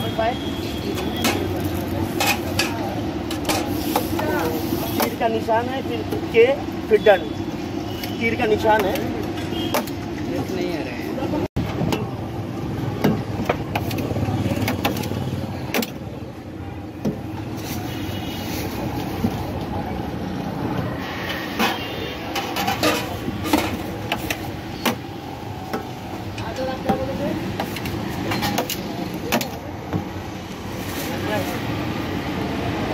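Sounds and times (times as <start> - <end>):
street traffic rumble: 0.0 - 32.9
metal pots and spoons clattering: 0.9 - 4.2, 21.6 - 25.0, 27.6 - 29.6.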